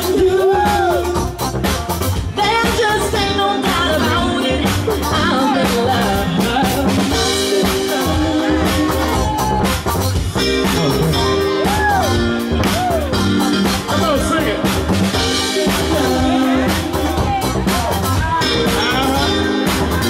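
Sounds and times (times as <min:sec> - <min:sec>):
people singing: 0:00.0 - 0:01.3, 0:02.4 - 0:09.6, 0:15.1 - 0:20.0
bass: 0:00.0 - 0:20.0
drum kit beat: 0:00.0 - 0:20.0
guitar: 0:00.0 - 0:20.0
keyboards: 0:00.0 - 0:20.0.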